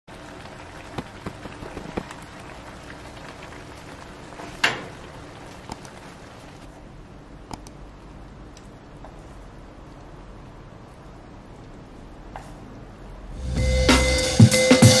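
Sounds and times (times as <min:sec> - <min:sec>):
sauce simmering and popping: 0:00.1 - 0:06.8
sharp click: 0:07.5 - 0:07.8.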